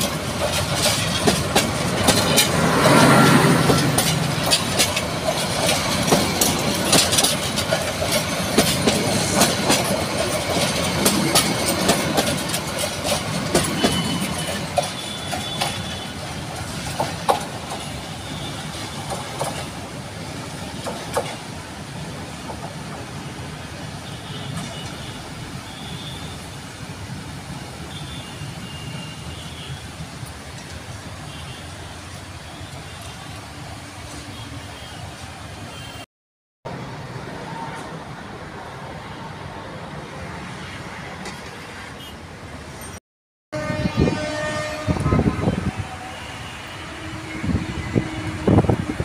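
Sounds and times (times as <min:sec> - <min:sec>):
train wheels clicking over rail joints: 0:00.0 - 0:21.6.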